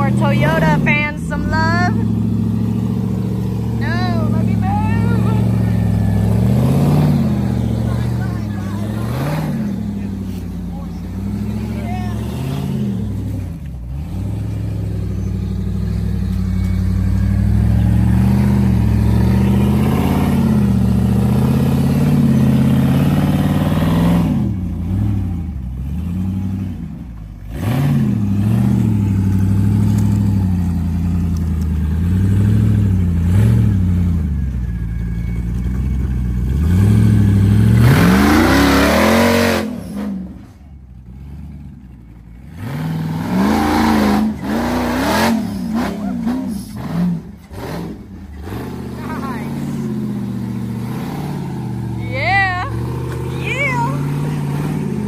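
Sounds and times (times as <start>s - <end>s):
off-road vehicle engine revving: 0.0s - 55.0s.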